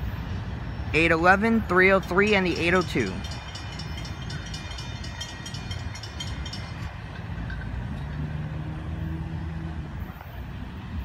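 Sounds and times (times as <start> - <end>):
road traffic engines and tyres: 0.0 - 11.0
rapid high ringing: 1.9 - 7.9.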